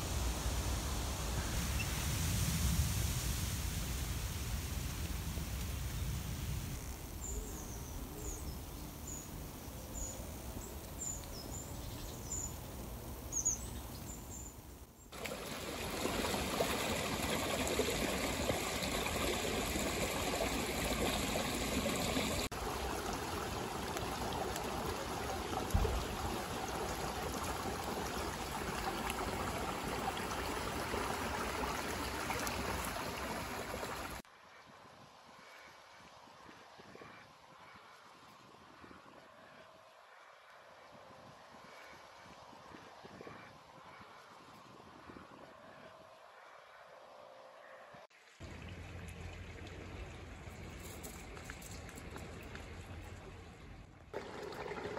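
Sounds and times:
stream water trickling: 0:00.0 - 0:34.3, 0:48.0 - 0:54.9.

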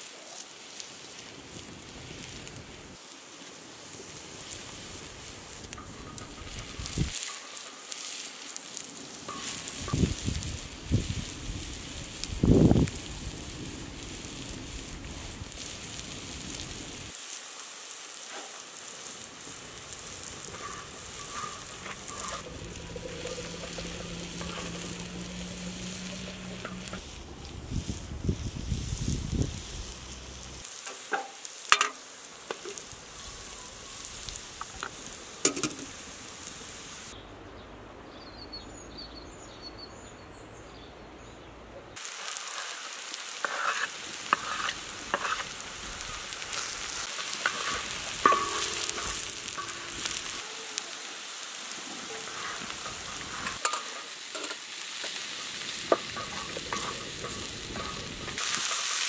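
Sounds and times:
onions sizzling in oil: 0:00.0 - 0:37.2, 0:42.0 - 0:59.0
wooden spatula scraping metal: 0:09.3 - 0:10.0, 0:20.2 - 0:27.1, 0:43.4 - 0:50.4, 0:55.9 - 0:59.0.

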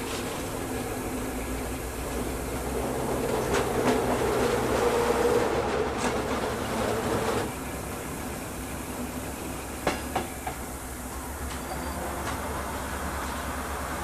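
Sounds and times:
wheels clicking on track: 0:00.0 - 0:14.0.

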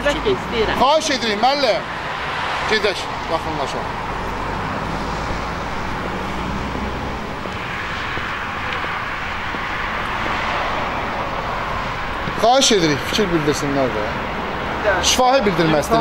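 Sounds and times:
engine rushing: 0:00.0 - 0:16.0.

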